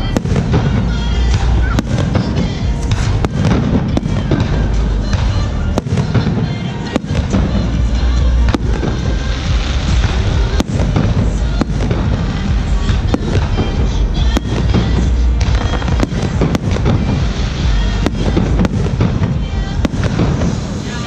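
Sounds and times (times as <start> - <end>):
deep rumble: 0.0 - 20.9
fireworks bursting with sharp bangs: 0.0 - 21.0.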